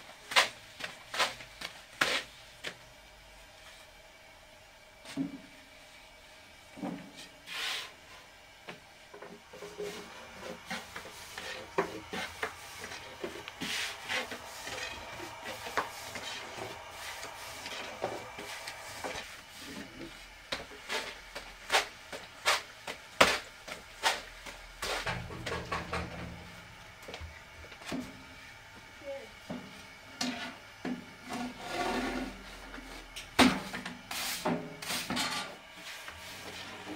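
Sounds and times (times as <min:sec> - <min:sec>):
objects rubbing and scraping: 0:09.2 - 0:22.7, 0:31.2 - 0:33.1.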